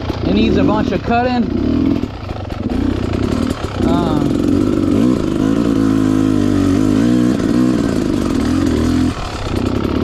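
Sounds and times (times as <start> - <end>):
dirt bike engine revving: 0.0 - 10.0.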